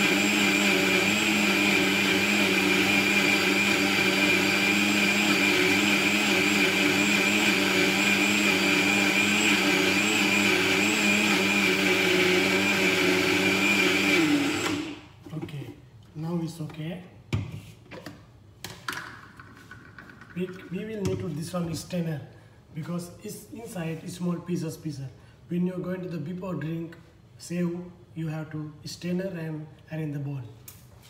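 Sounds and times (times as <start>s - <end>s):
blender running: 0.0s - 15.1s.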